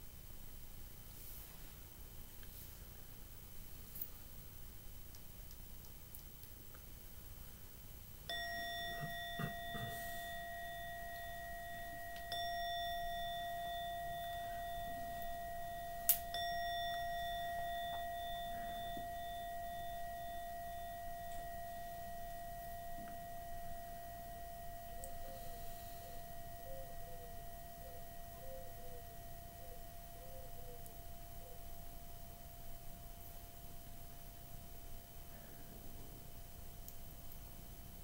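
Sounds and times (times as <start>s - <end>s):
singing bowl ringing: 8.3s - 36.8s.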